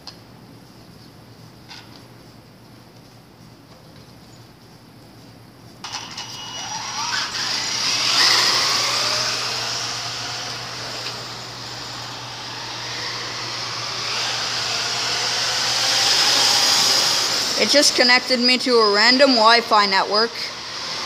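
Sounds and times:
toy car motor whining: 5.8s - 18.4s.

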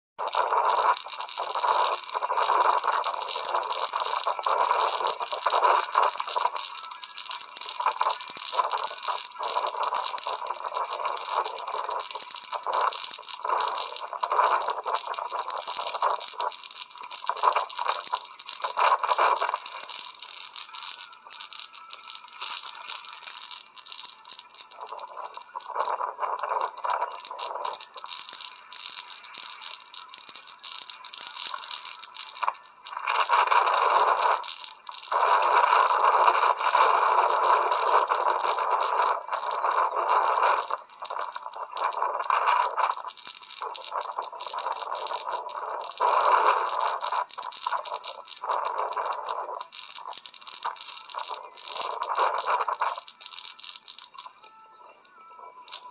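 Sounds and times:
bicycle rattling and scraping: 42.6s - 54.2s.

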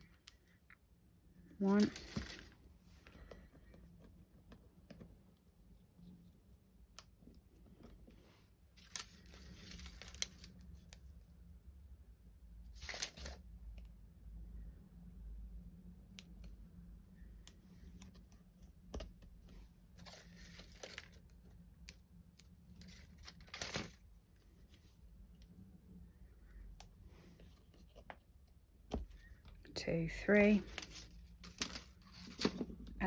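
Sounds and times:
paper rustles and small ticks: 8.8s - 11.1s, 12.8s - 13.4s, 20.0s - 24.0s, 30.6s - 32.8s.

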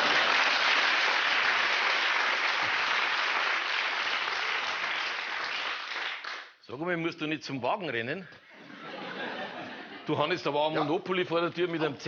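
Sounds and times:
audience applauding: 0.0s - 6.5s.

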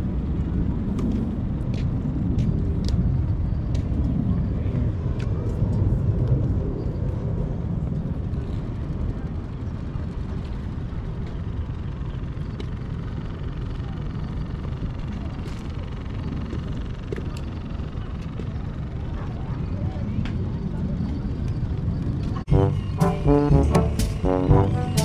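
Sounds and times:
low outdoor rumble: 22.4s - 25.0s.

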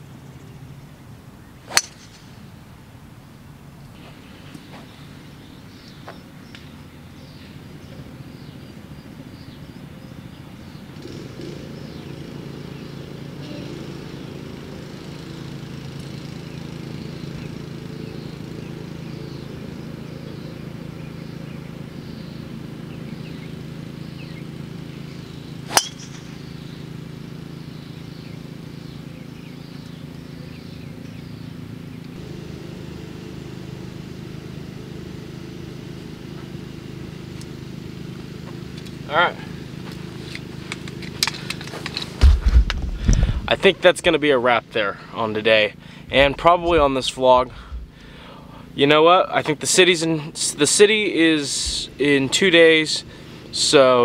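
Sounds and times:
low hum: 0.0s - 43.8s, 44.6s - 48.8s
golf club striking ball: 1.7s - 2.6s, 25.6s - 26.7s.

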